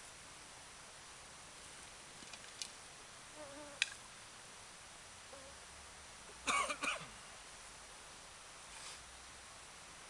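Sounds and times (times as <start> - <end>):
faint forest background: 0.0 - 10.0
insect buzzing past: 3.3 - 4.1.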